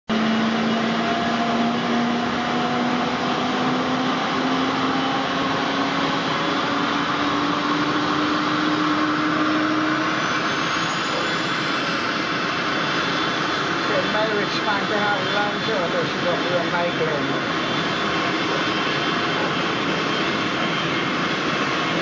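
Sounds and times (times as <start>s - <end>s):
helicopter turbine engine running: 0.1s - 22.0s
high whistle climbing: 0.6s - 14.2s.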